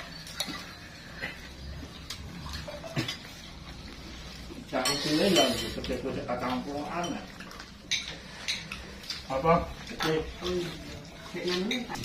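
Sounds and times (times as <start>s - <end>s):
dishes and cutlery clinking: 0.0s - 12.0s
low room murmur: 0.0s - 12.0s.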